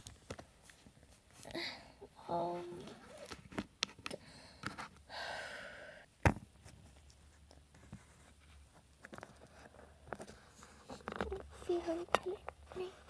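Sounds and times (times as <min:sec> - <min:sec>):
breathy sigh: 0:04.1 - 0:06.1.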